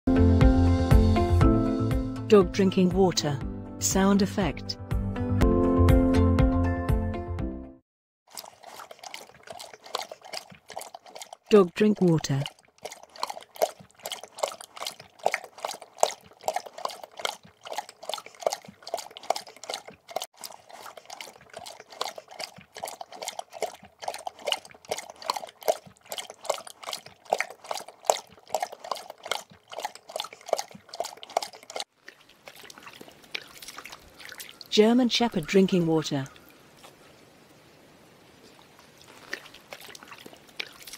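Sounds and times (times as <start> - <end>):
dog lapping water: 8.3 - 37.3, 38.3 - 40.9.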